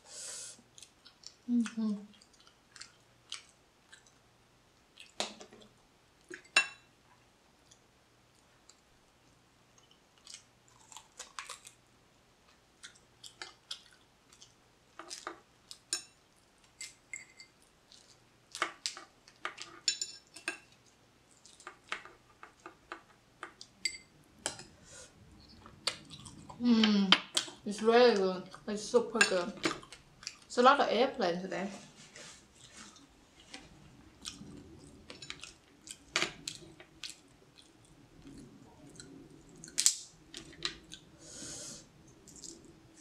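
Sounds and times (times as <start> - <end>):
close-up chewing: 2.1 - 4.2, 9.7 - 11.8, 12.4 - 15.9, 25.4 - 26.6, 29.6 - 30.5, 32.4 - 41.2.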